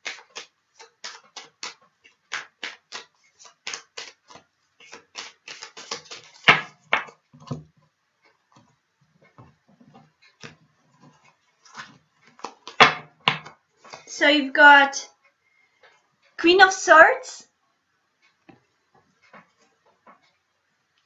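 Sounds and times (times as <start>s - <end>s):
cards being shuffled: 0.0s - 7.2s, 11.1s - 14.1s.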